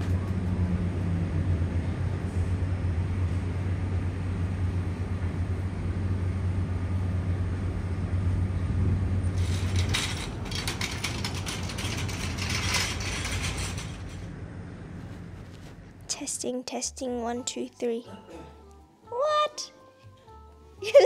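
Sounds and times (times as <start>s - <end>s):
steady low hum: 0.0s - 16.4s
hand truck rattling over bricks: 9.3s - 14.4s.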